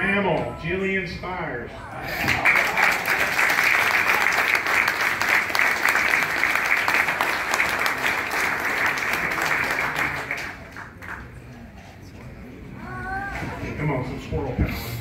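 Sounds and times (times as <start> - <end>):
audience applauding: 2.1 - 11.4.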